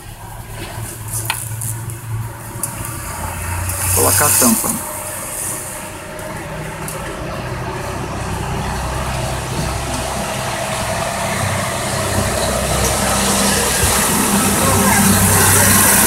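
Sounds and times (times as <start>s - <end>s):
low engine rumble: 0.0s - 16.0s.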